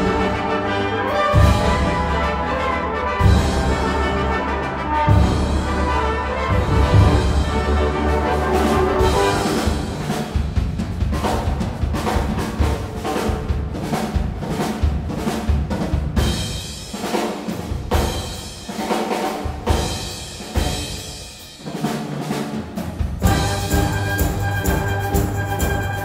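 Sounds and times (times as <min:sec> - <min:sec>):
held brass chords: 0:00.0 - 0:10.2, 0:23.2 - 0:26.0
timpani and drum strikes: 0:00.0 - 0:26.0.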